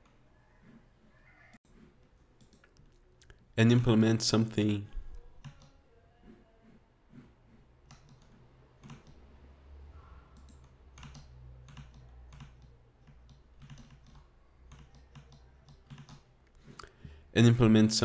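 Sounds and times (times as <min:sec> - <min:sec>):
keyboard and mouse clicks: 0:01.5 - 0:03.4, 0:04.6 - 0:05.8, 0:07.1 - 0:09.3, 0:10.3 - 0:17.0.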